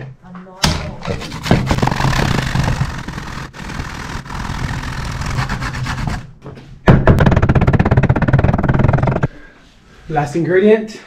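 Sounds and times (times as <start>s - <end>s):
loud knock: 6.8s - 9.3s.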